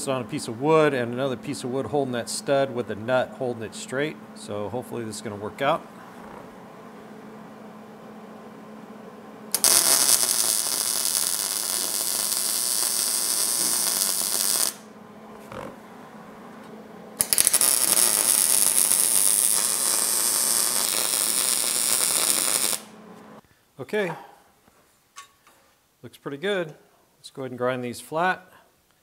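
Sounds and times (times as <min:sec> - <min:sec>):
welder arc crackling: 0:08.9 - 0:15.9, 0:16.5 - 0:23.4.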